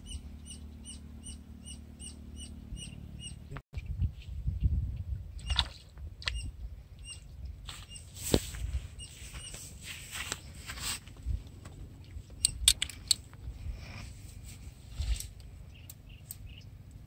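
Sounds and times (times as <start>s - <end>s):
small birds chirping: 0.0s - 4.0s, 6.2s - 8.3s, 8.9s - 9.7s, 15.4s - 17.0s
wind rumble on microphone: 3.8s - 16.7s
rustling and flapping in grass: 7.6s - 12.0s.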